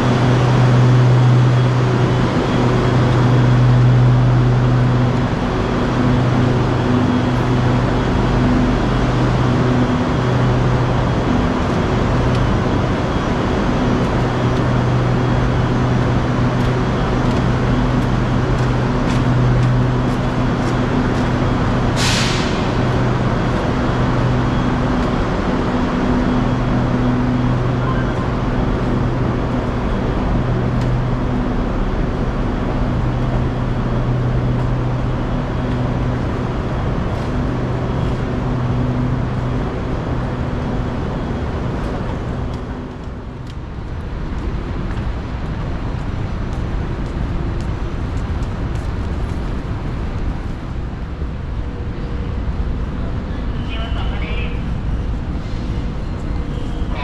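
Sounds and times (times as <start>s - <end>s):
electric train humming: 0.0s - 57.0s
air release hiss: 22.0s - 22.7s.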